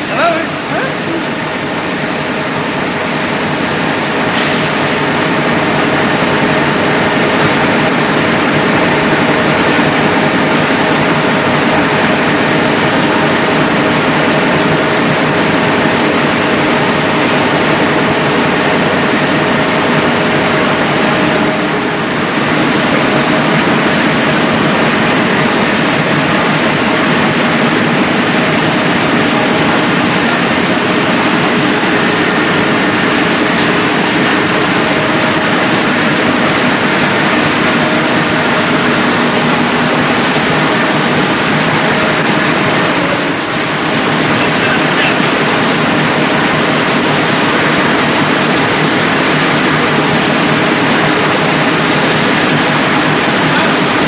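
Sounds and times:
printing presses running: 0:00.0 - 0:54.0.

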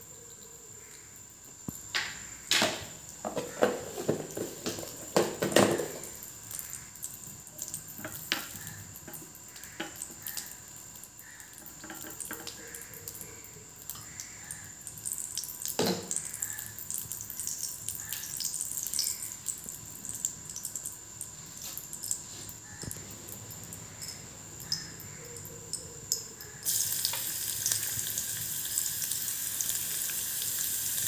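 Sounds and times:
butter crackling in a pan: 0:26.6 - 0:31.0.

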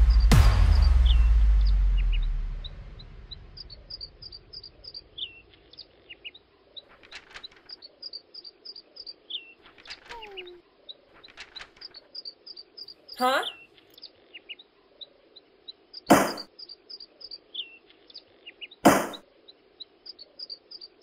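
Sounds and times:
deep low note: 0:00.0 - 0:04.9
small birds chirping: 0:00.0 - 0:21.0
brief crackles: 0:06.9 - 0:07.8, 0:09.6 - 0:10.6, 0:11.2 - 0:12.1.

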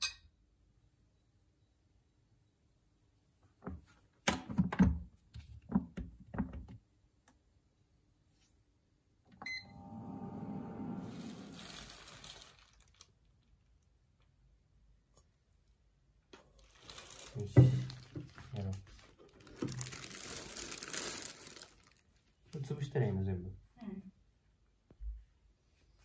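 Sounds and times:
click with short beep: 0:09.4 - 0:09.8.

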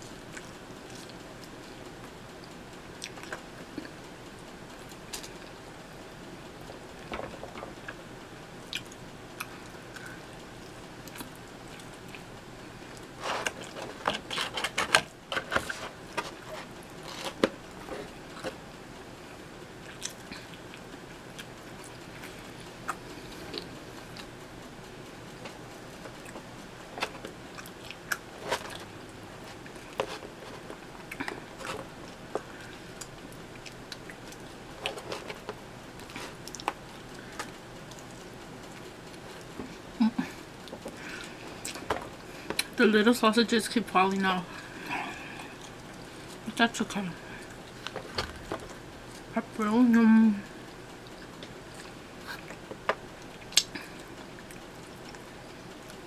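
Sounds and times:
chewing: 0:00.1 - 0:04.1, 0:08.7 - 0:18.6, 0:19.8 - 0:24.4, 0:25.2 - 0:42.8, 0:47.2 - 0:49.3, 0:50.7 - 0:56.0.

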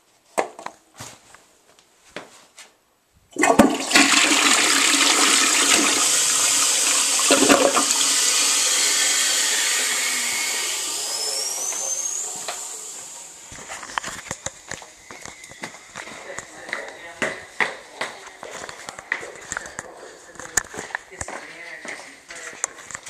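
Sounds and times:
toilet flushing: 0:03.4 - 0:13.8
thin rising whistle: 0:08.5 - 0:13.6, 0:14.9 - 0:16.3.

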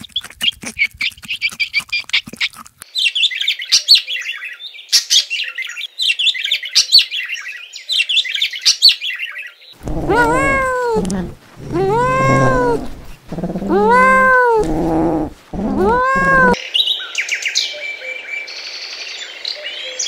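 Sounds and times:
kitten meowing: 0:09.8 - 0:16.6.

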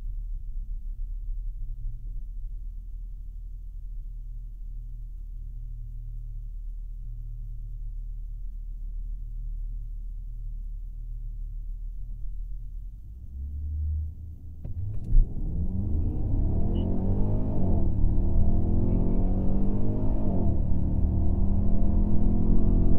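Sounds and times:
car engine idling: 0:11.0 - 0:21.5.

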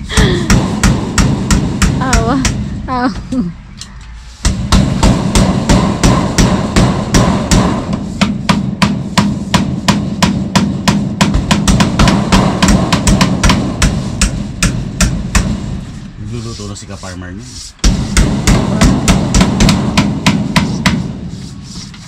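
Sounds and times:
hammering on roof framing: 0:00.2 - 0:02.8, 0:04.4 - 0:16.0, 0:17.8 - 0:21.8.

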